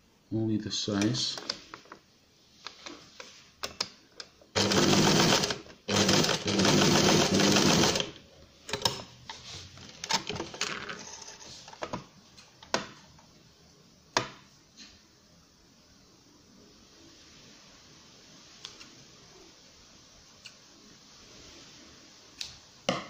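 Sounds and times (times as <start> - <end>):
sewing machine stitching: 4.5 - 9.0.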